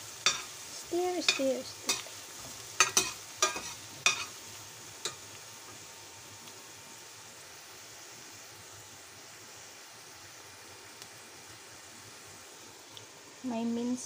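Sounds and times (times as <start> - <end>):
garlic sizzling in oil: 0.0 - 14.0
spatula scraping and knocking pan: 1.2 - 4.4.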